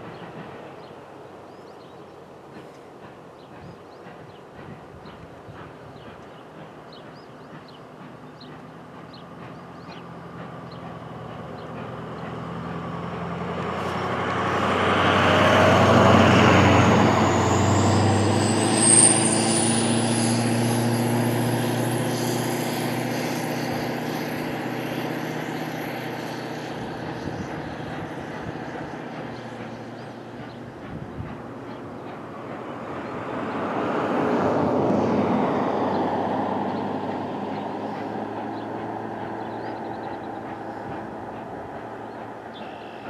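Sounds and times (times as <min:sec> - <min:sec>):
steam train rumbling past: 0:00.0 - 0:43.0
thin high squeal: 0:18.4 - 0:21.4.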